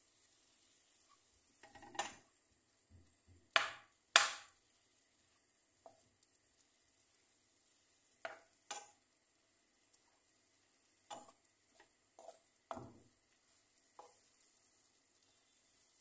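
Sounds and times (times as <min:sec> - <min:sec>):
spatula scraping frying pan: 0:08.1 - 0:09.0, 0:09.9 - 0:16.0.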